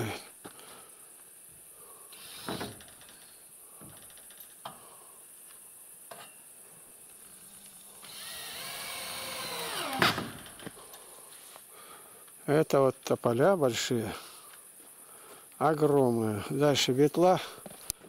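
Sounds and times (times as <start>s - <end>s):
drill motor whining: 8.0s - 10.4s.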